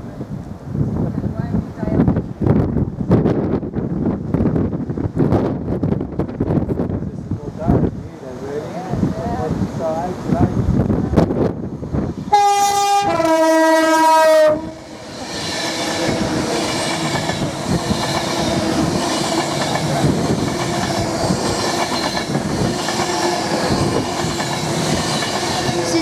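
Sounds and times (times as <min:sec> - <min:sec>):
train rushing past: 0:00.9 - 0:26.0
two-tone train horn: 0:12.3 - 0:14.9.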